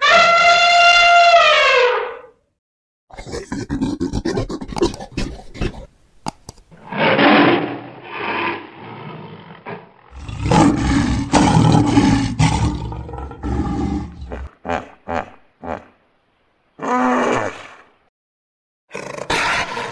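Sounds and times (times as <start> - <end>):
animal roar: 6.8 - 14.9, 18.9 - 19.9.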